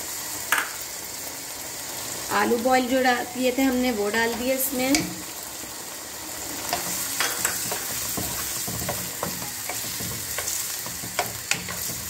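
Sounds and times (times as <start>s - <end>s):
food sizzling in oil: 0.0s - 12.0s
spatula tapping and scraping pan: 6.7s - 12.0s.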